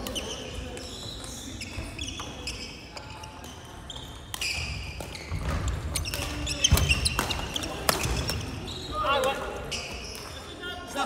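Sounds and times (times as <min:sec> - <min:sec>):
sneakers squeaking on wooden floor: 0:00.0 - 0:10.6.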